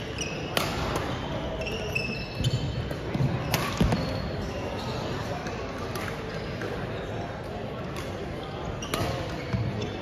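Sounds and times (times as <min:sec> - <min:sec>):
shoes squeaking on court: 0:00.0 - 0:07.2, 0:08.5 - 0:10.0
rackets hitting shuttlecock: 0:00.3 - 0:01.4, 0:02.4 - 0:04.4, 0:05.4 - 0:06.8, 0:07.8 - 0:09.8.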